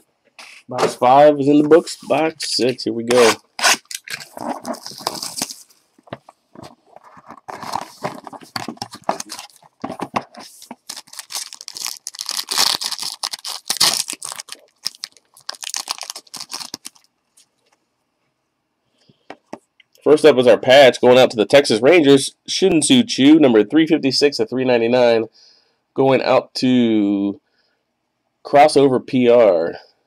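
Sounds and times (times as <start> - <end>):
plastic wrap crinkling and tearing: 2.4 - 5.7, 6.6 - 17.1.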